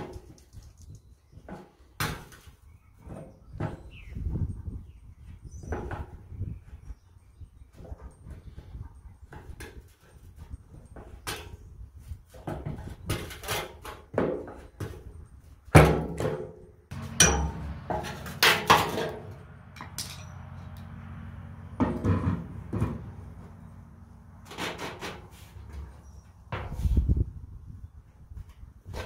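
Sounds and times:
hand tools knocking on metal: 16.9 - 20.4.

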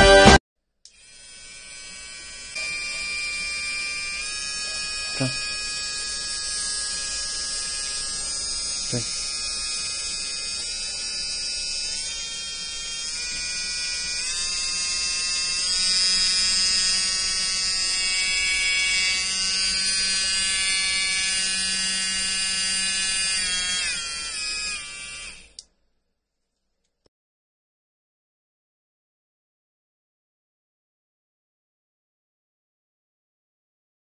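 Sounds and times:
electric nail drill whining: 0.9 - 25.6.

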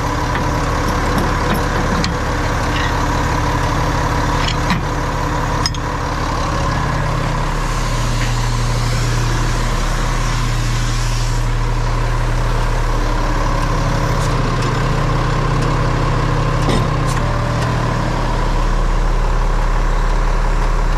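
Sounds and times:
diesel truck engine idling: 0.0 - 20.9.

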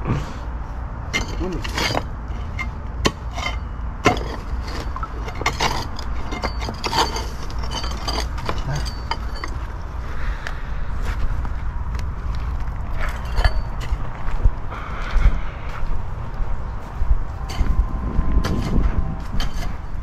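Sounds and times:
steady low rumble: 0.0 - 20.0
concrete chunks and gravel clinking: 1.1 - 9.7, 12.3 - 14.3.

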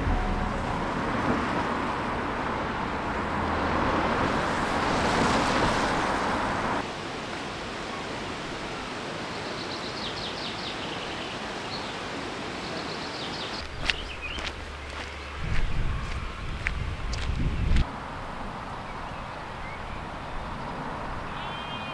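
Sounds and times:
countryside ambience: 0.0 - 21.9
songbird chirping: 9.2 - 17.8.

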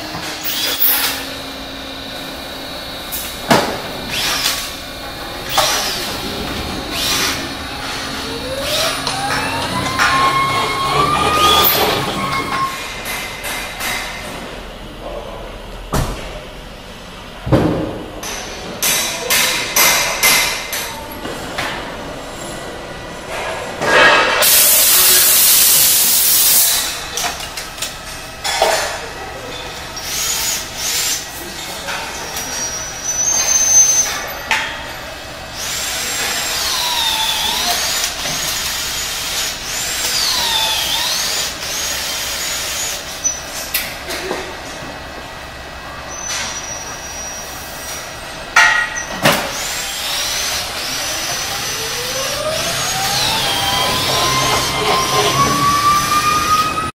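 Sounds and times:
electric pallet truck motors whining: 0.0 - 13.1, 29.1 - 48.4, 49.1 - 56.9.

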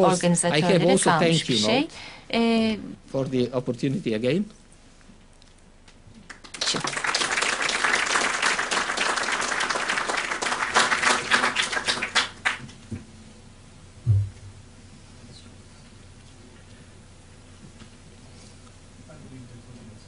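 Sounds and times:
audience applauding: 6.2 - 12.7.

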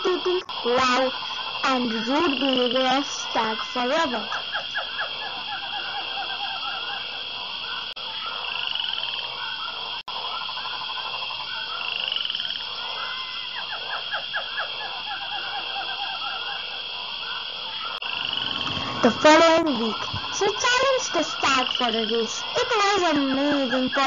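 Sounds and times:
steady high buzz: 0.0 - 4.6, 18.0 - 24.0
frogs croaking: 0.0 - 24.0.

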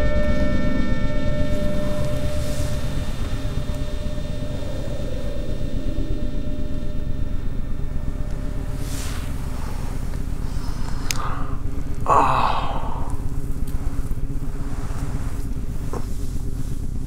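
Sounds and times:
low rumbling drone: 0.0 - 17.0
person sighing: 8.8 - 13.6.

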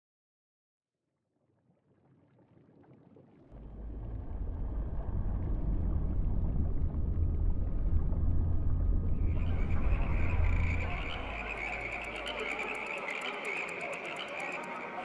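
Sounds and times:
low rumbling ambience: 3.5 - 12.9.

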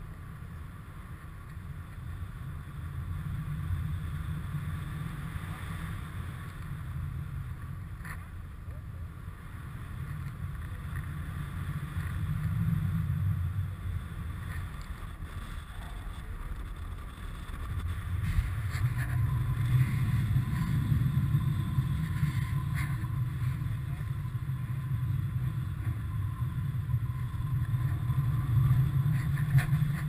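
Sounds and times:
wind buffeting microphone: 10.0 - 30.0.

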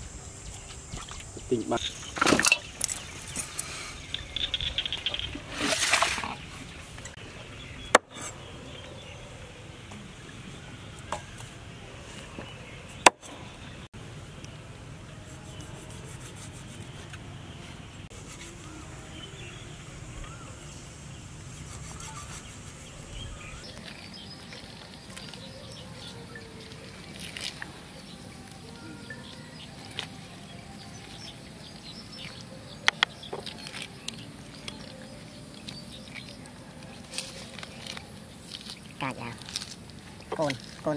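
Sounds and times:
snake skin peeling crackles: 23.7 - 31.2, 31.8 - 40.9.

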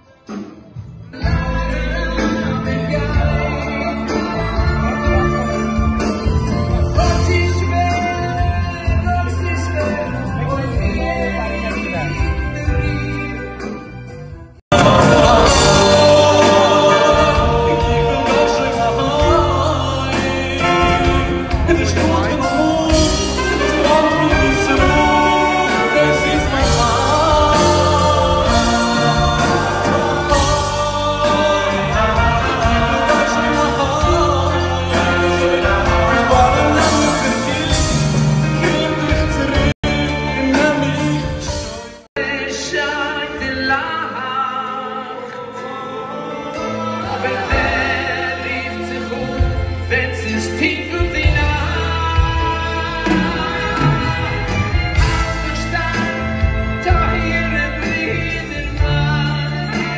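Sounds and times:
live band playing: 0.0 - 59.9
choir singing: 14.7 - 59.9
man singing into a microphone: 14.7 - 59.9.

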